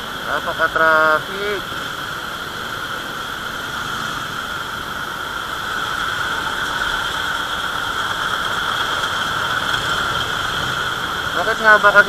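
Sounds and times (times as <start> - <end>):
motorcycle engine whine: 0.0 - 12.0
wind rushing noise: 2.1 - 11.4.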